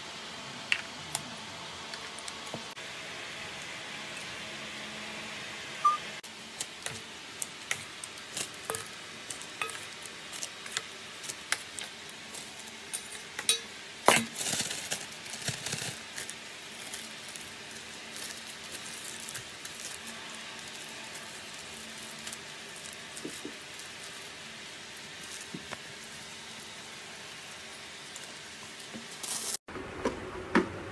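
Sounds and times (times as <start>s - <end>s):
plastic bag rustling: 6.6s - 13.4s, 14.0s - 29.6s
metal spoon clinking on bowl: 9.6s - 9.8s, 13.0s - 13.7s.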